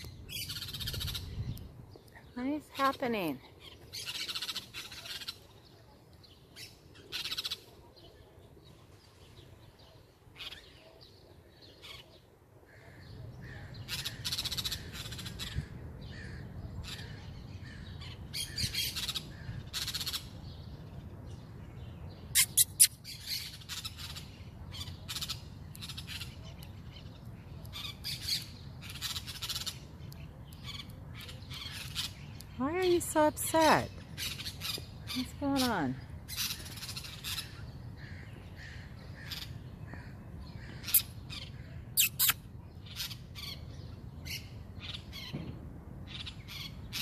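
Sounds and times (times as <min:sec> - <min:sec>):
parrots calling harshly: 0:22.3 - 0:25.4, 0:40.7 - 0:43.6.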